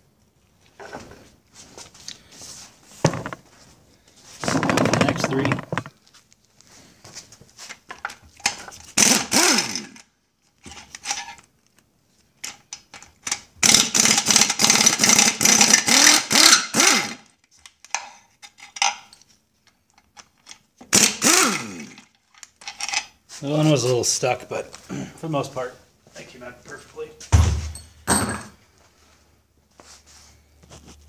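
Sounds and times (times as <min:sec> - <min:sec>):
impact wrench hammering bolts: 0:13.3 - 0:17.2.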